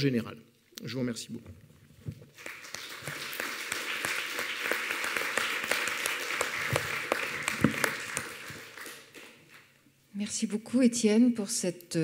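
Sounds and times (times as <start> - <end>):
audience applauding: 2.3 - 9.7.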